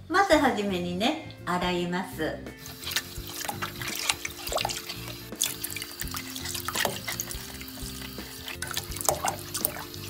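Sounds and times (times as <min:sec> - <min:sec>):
light background music: 0:00.0 - 0:10.0
hands rubbing vegetables: 0:02.5 - 0:10.0
tap water splashing into colander: 0:02.6 - 0:10.0.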